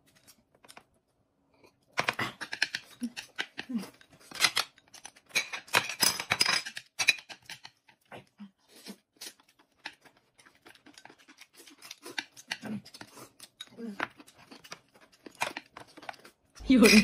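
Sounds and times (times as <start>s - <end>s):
noodles slurped and chewed: 8.2s - 16.5s.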